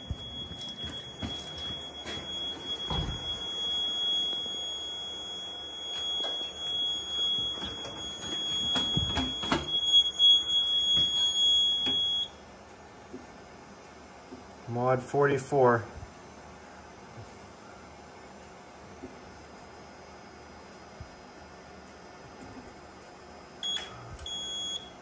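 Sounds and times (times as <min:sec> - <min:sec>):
high-pitched alarm tone: 0:00.0 - 0:12.4.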